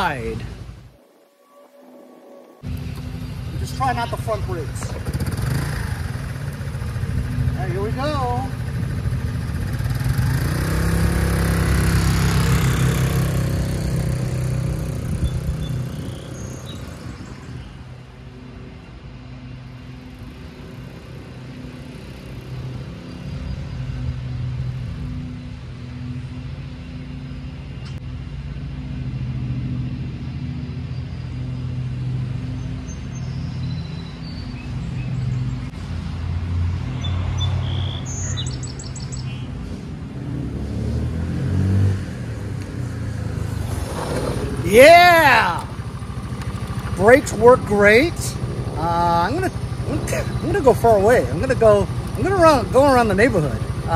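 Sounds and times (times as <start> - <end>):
birds chirping: 0.0 - 24.1, 30.4 - 35.9, 36.8 - 39.8, 42.8 - 53.9
scooter engine: 2.6 - 18.4, 28.6 - 53.9.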